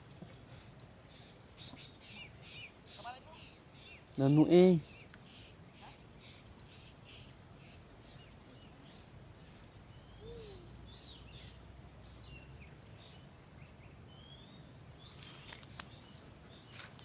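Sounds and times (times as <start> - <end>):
birds chirping: 0.0 - 17.0
faint low outdoor rumble: 4.8 - 17.0.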